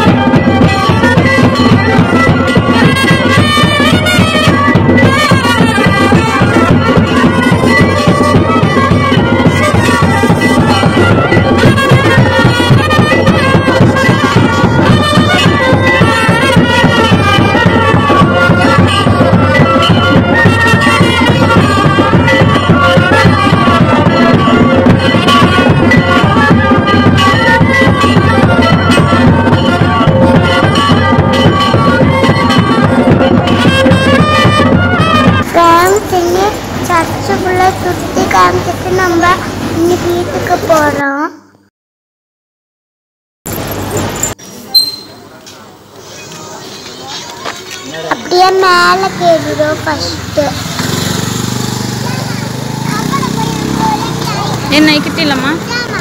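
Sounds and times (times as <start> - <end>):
drumming: 0.0 - 41.0, 47.9 - 56.0
wind instrument melody: 0.0 - 41.5, 43.5 - 45.9.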